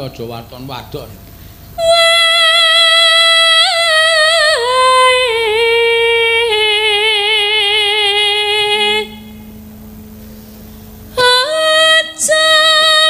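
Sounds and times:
woman singing into a microphone: 1.8 - 9.3, 11.2 - 13.0.

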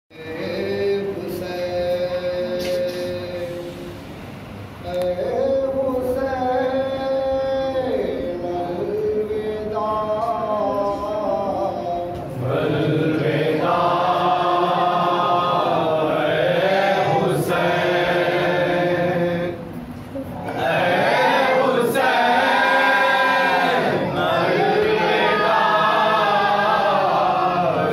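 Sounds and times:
man chanting into a microphone: 4.8 - 13.0.

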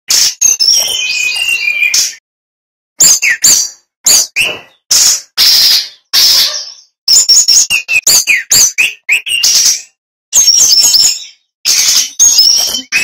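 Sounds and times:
bird singing whistled notes: 0.1 - 2.2, 3.0 - 13.0
harsh raspy bird notes: 3.0 - 13.0.

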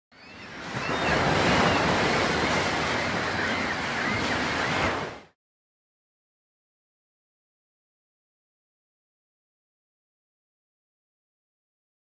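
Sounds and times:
waves breaking: 0.3 - 5.4.

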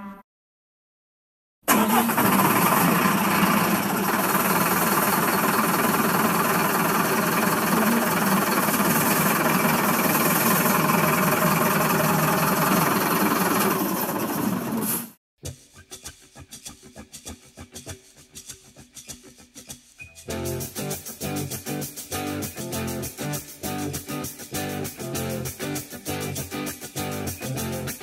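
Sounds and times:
engine running with rattling clatter: 1.7 - 15.2.

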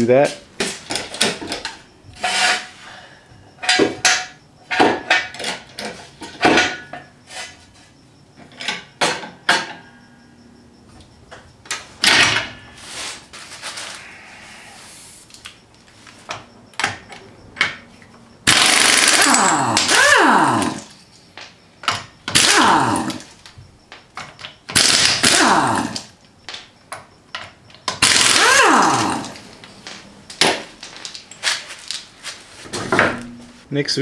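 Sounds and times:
metallic knocks of floor jack: 3.6 - 7.0
pneumatic impact wrench: 18.4 - 20.9, 22.3 - 23.2, 24.7 - 26.1, 28.0 - 29.4.

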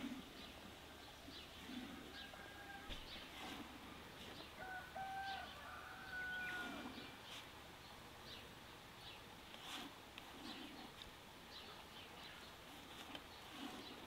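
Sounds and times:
faint chicken calls: 1.7 - 3.7, 4.3 - 7.1.

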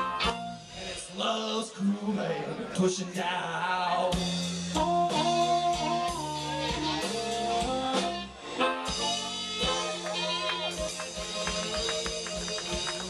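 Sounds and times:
drums and bass: 4.0 - 13.0
electric guitar: 4.7 - 13.0
harmonica: 4.8 - 13.0.

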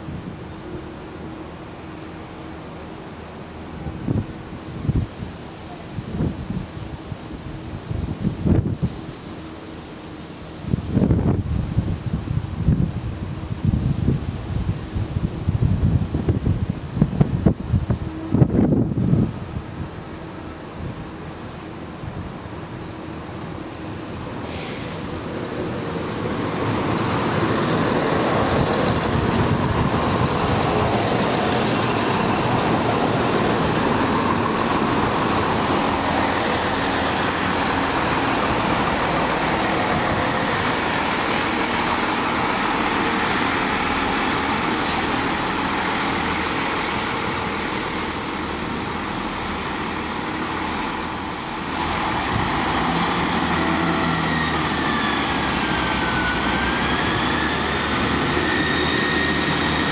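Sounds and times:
diesel train engine noise: 0.0 - 59.9
train wheels on rails: 23.4 - 59.9.

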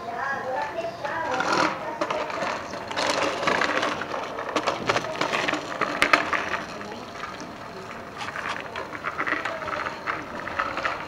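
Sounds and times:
footsteps crunching on gravel: 2.2 - 11.0.

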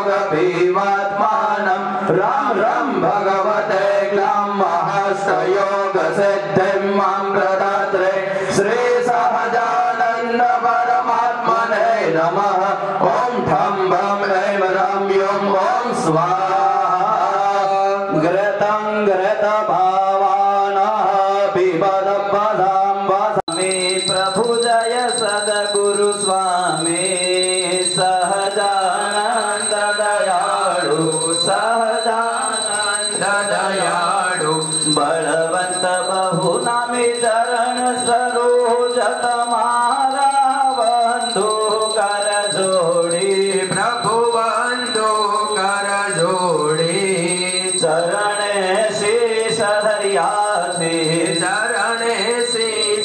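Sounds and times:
thin high-pitched ringing tone: 23.5 - 53.0.

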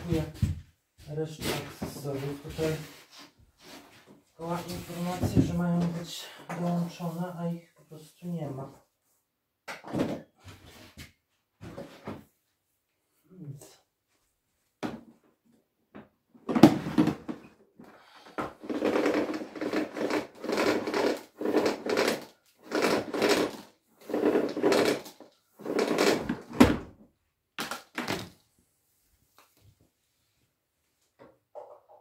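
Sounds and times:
vacuum power cord being pulled: 18.6 - 26.7.

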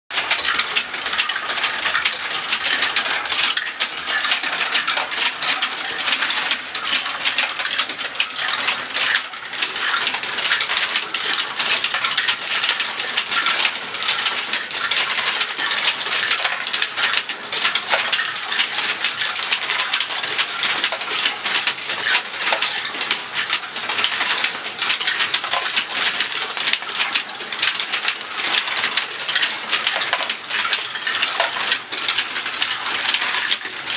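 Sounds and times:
plastic balls rattling through tracks: 0.1 - 33.9.

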